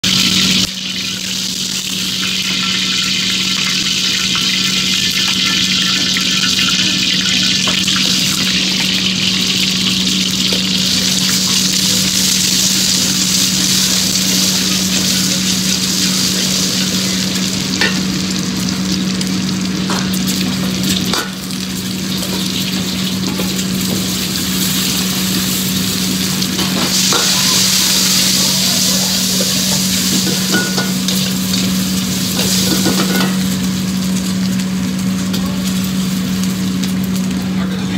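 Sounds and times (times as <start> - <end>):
food sizzling in a hot wok: 0.0 - 37.6.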